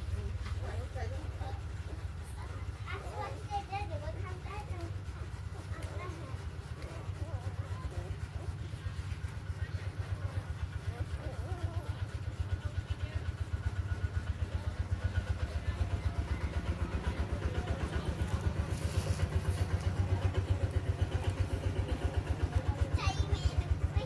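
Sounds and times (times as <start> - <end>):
small engine idling: 0.0 - 24.0.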